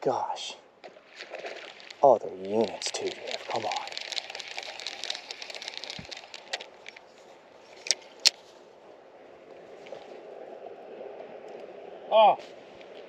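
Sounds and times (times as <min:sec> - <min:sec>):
sharp clicks: 0:02.6 - 0:07.0
fishing reel clicking: 0:02.8 - 0:07.0.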